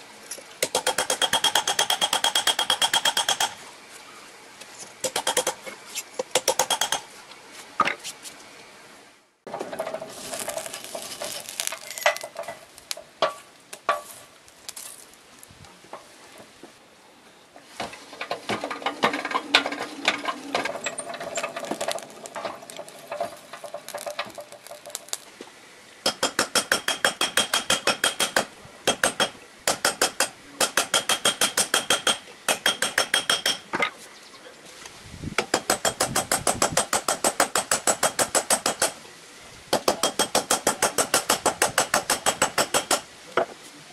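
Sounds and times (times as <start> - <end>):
forge fire crackling: 9.5 - 16.8, 18.8 - 25.5.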